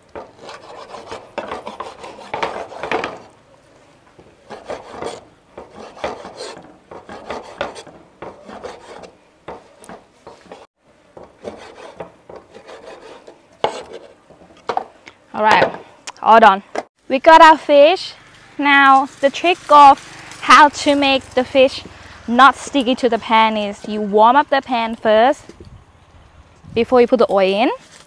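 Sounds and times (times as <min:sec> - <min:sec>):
knife sawing through fish: 0:00.2 - 0:03.2, 0:04.4 - 0:10.7, 0:11.4 - 0:14.2.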